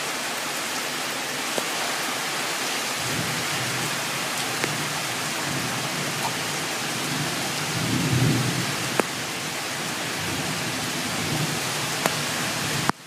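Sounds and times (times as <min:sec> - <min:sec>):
heavy rain pouring: 0:00.0 - 0:13.0
low rumble of thunder: 0:03.0 - 0:11.8.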